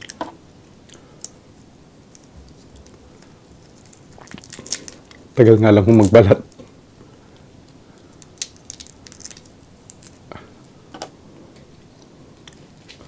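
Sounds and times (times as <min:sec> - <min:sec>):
shrimp shell crackling as peeled: 0:02.1 - 0:06.6, 0:07.9 - 0:10.3
chewing: 0:02.2 - 0:05.2.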